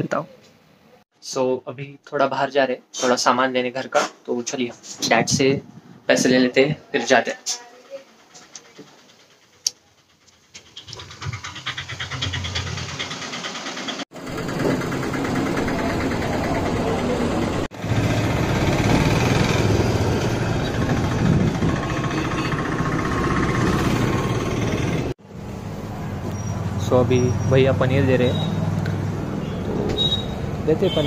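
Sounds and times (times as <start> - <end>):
street noise: 7.5 - 31.0
vehicle engine running: 8.1 - 31.0.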